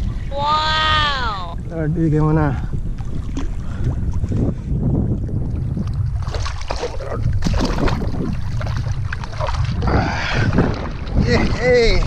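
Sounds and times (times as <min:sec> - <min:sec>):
wind buffeting microphone: 0:00.0 - 0:12.0
water splashing: 0:05.6 - 0:12.0.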